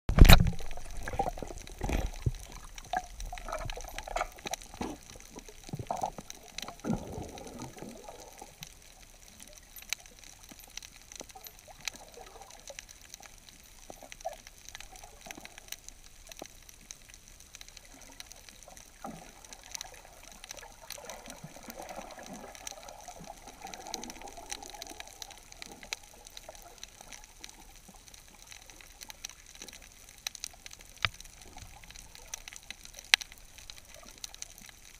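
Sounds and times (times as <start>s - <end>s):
muffled water sloshing: 0.1s - 8.8s
sharp underwater clicks: 0.1s - 34.9s.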